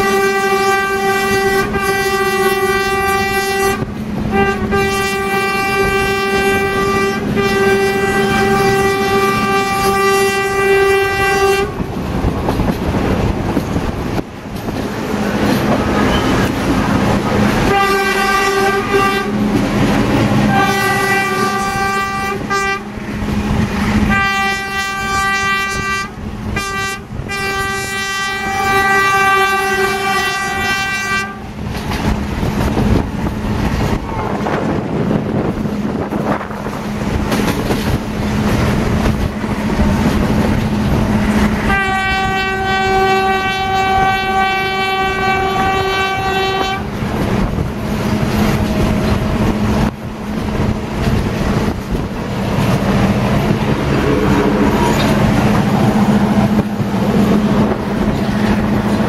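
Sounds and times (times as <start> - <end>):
train horn blasts: 0.0 - 11.9, 17.6 - 19.5, 20.4 - 23.0, 24.0 - 31.6, 41.6 - 47.0
train carriages rumbling on rails: 0.0 - 59.0.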